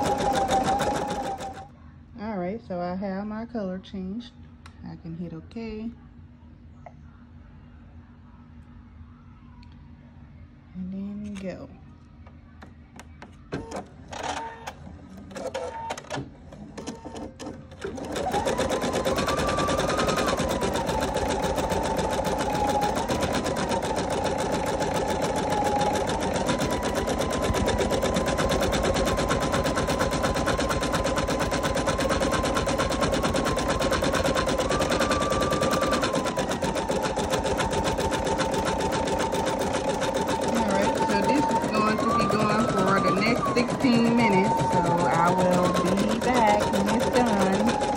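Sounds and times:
embroidery machine stitching: 0:00.0 - 0:01.7, 0:16.8 - 0:47.9.

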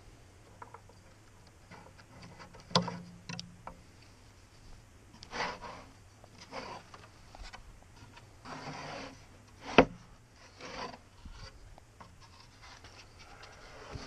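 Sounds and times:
wood scraping on wood: 0:05.1 - 0:14.0.

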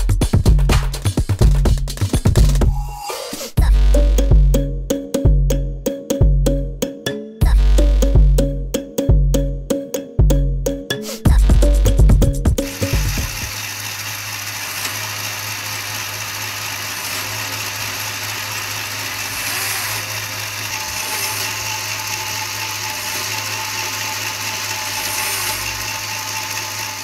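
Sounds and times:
motor hum: 0:11.2 - 0:27.0
plastic gears whirring: 0:12.6 - 0:27.0.

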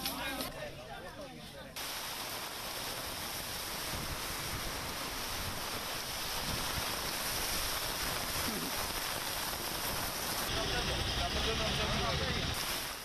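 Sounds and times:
heavy rain pouring: 0:01.8 - 0:13.0
wind on microphone: 0:03.0 - 0:10.5.

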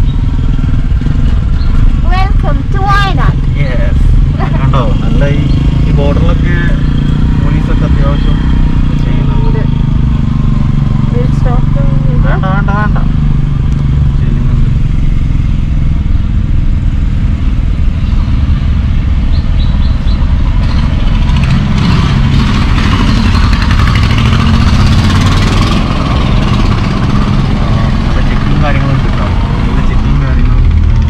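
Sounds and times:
car interior road rumble: 0:00.0 - 0:31.0.

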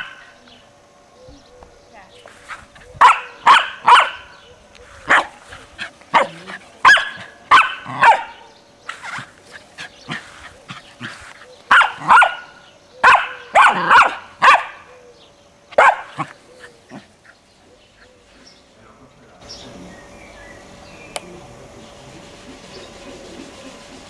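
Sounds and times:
dog barking: 0:03.0 - 0:04.4, 0:05.1 - 0:05.4, 0:06.1 - 0:08.5, 0:11.7 - 0:14.9, 0:15.7 - 0:17.0.

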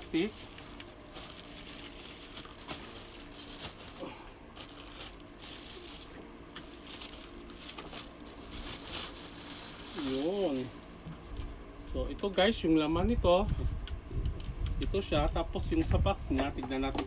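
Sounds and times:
plastic bag crinkling: 0:00.0 - 0:11.1.

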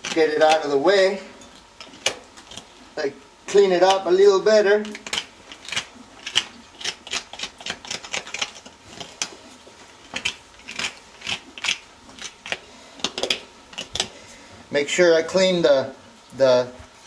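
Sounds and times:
hoof knife scraping hoof: 0:03.5 - 0:14.5.

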